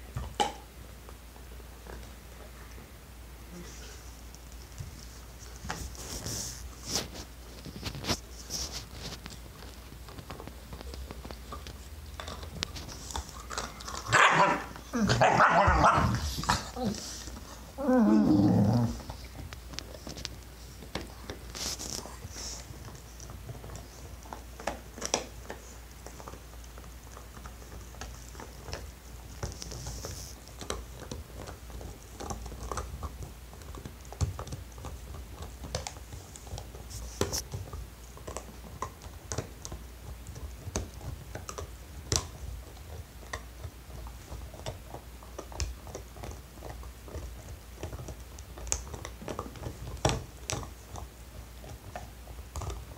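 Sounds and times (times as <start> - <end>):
puppies gnawing chew bone: 0.0 - 52.9
dog barking: 14.1 - 16.2.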